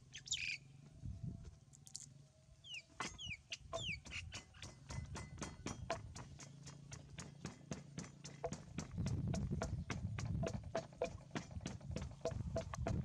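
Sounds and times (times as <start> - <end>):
bird chirps: 0.0 - 0.8, 1.9 - 5.1
rhythmic knocking of food preparation: 3.7 - 13.0.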